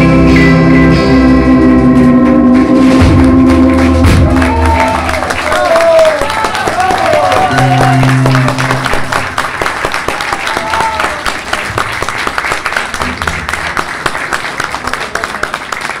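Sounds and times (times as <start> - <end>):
audience applauding: 3.0 - 16.0
band holding last note: 7.3 - 9.2.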